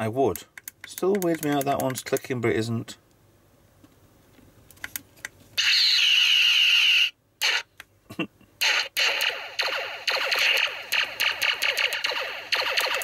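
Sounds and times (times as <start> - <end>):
plastic clicks from a toy: 0.3 - 2.3
short electronic bursts: 5.6 - 7.7.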